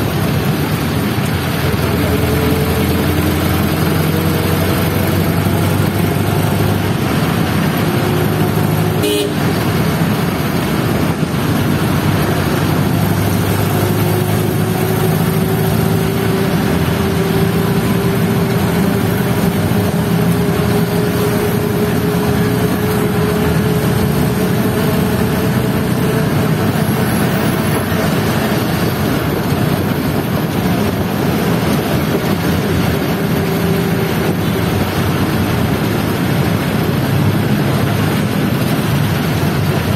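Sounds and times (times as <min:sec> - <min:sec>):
vehicle engine and road noise: 0:00.0 - 0:39.9
car horn toot: 0:09.0 - 0:09.6.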